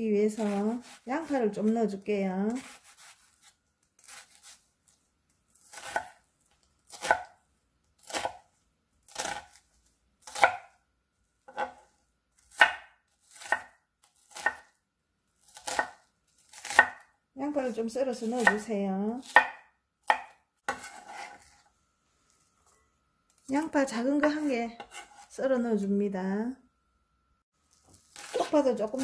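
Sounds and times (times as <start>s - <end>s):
knife cutting onion on board: 0.2s - 4.7s, 5.6s - 6.2s, 6.9s - 7.4s, 8.0s - 8.5s, 9.1s - 10.8s, 11.5s - 14.8s, 15.4s - 21.7s, 23.4s - 25.4s, 27.7s - 29.0s.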